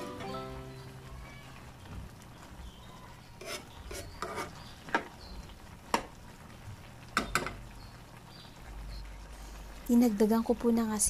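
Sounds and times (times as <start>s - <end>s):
spoon stirring food in frying pan: 1.8s - 8.7s.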